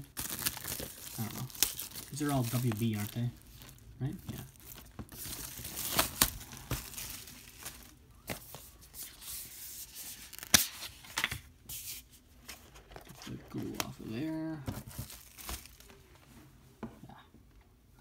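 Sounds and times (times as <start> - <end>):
plastic wrap crinkling and tearing: 0.0 - 11.0, 14.7 - 16.0.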